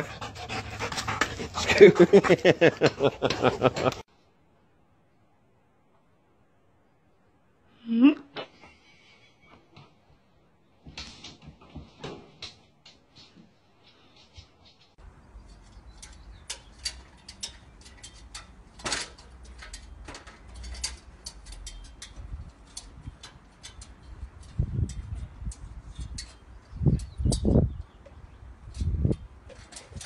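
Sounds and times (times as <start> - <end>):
dog claws clicking on metal ladder: 15.5 - 27.6, 28.6 - 30.0.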